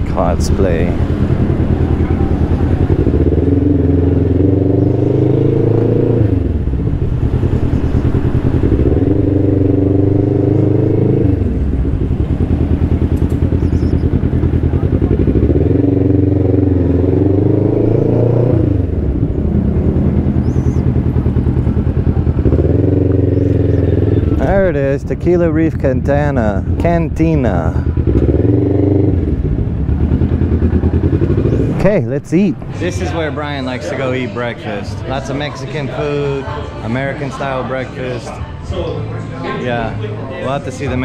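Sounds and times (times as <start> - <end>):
scooter engine running: 0.6 - 24.6, 27.8 - 31.8.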